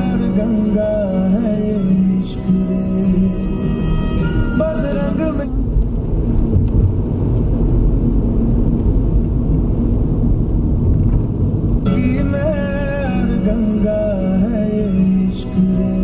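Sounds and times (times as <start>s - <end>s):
song: 0.0s - 5.7s, 11.8s - 16.0s
car road and engine noise: 0.0s - 16.0s.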